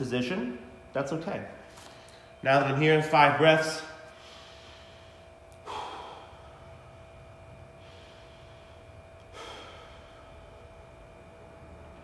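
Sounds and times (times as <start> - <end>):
man breathing slowly: 4.0 - 10.9.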